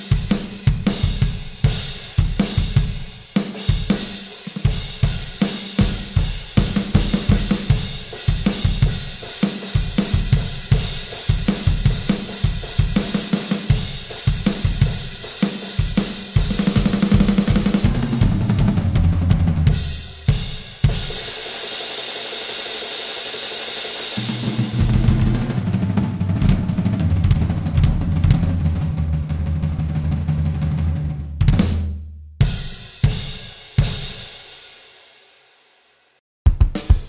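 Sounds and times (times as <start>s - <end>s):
electronic drum kit: 0.0s - 34.6s, 36.5s - 37.0s
cymbal crashes: 19.7s - 26.6s
rock band playing: 24.2s - 29.3s.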